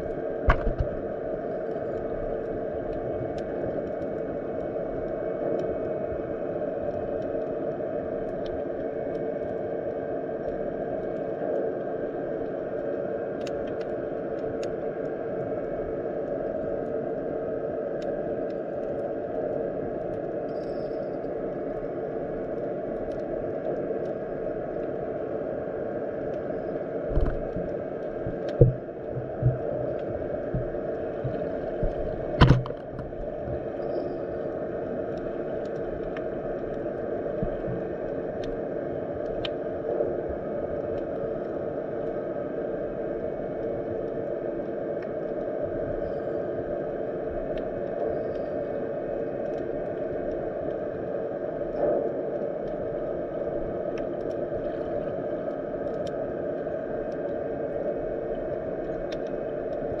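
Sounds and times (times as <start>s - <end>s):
faint clicks: 6.8s - 17.0s, 18.0s - 25.0s, 26.2s - 38.6s, 39.2s - 39.7s, 47.4s - 51.1s, 51.7s - 60.0s.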